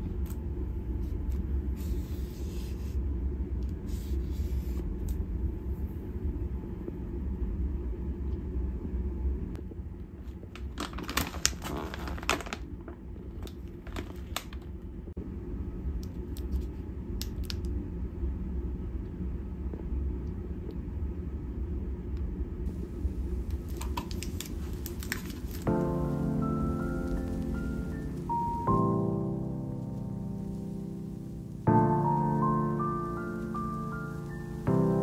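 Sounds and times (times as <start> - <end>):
low room hum: 0.0 - 35.0
plastic wrappers crinkling: 10.6 - 12.7, 13.4 - 14.6, 23.4 - 28.6.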